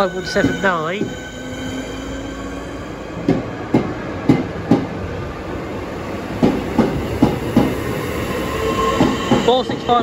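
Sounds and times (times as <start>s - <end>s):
train rumble: 0.0s - 10.0s
train wheels clacking over rail joints: 6.4s - 7.8s, 8.9s - 10.0s.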